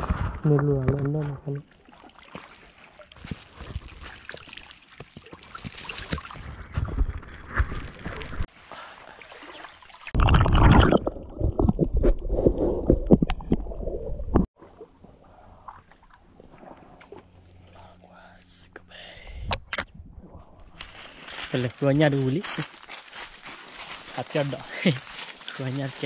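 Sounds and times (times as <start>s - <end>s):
creek water sloshing and splashing: 1.0s - 11.6s, 14.5s - 17.9s, 20.8s - 26.0s
rumbling wind: 19.1s - 21.5s.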